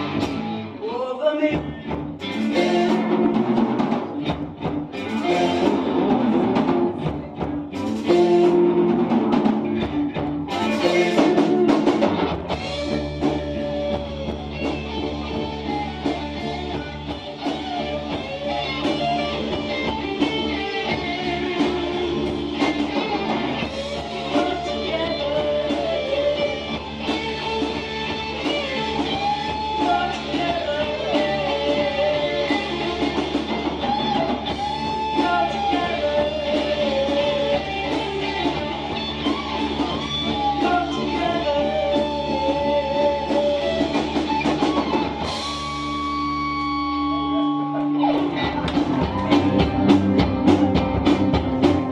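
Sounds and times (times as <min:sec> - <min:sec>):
person singing: 0:00.0 - 0:03.6, 0:10.5 - 0:45.6
bass guitar: 0:00.0 - 0:51.9
drum kit: 0:00.0 - 0:51.9
electric guitars: 0:00.0 - 0:51.9.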